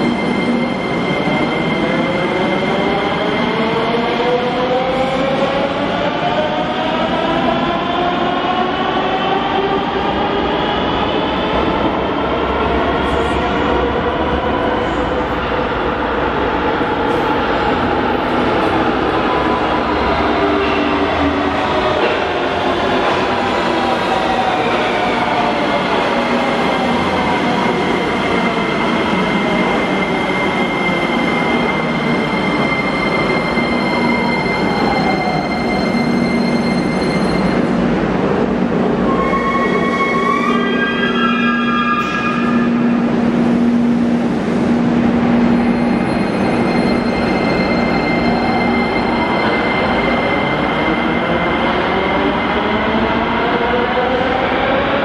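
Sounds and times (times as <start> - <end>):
train wheels rumbling on rails: 0.0 - 40.2.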